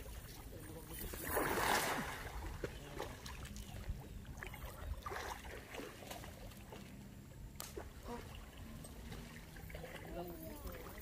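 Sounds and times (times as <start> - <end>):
water sloshing and trickling: 0.0 - 11.0.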